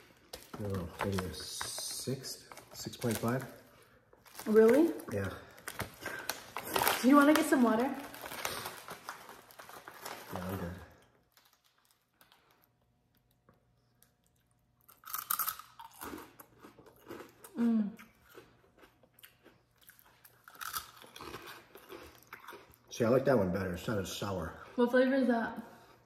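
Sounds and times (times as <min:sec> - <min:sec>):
crunching and chewing: 0:08.1 - 0:23.0
person humming: 0:17.6 - 0:18.0.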